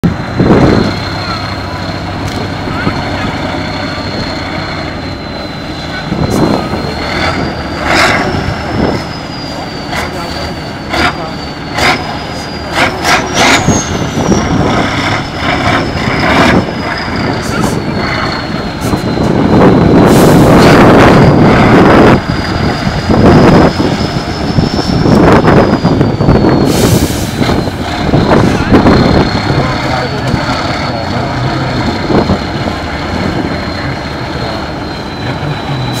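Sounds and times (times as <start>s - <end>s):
truck diesel engine labouring: 0.0s - 36.0s.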